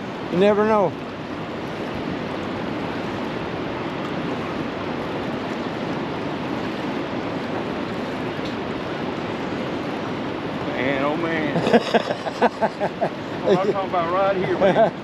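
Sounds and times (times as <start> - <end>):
heavy river current rushing: 0.0 - 15.0.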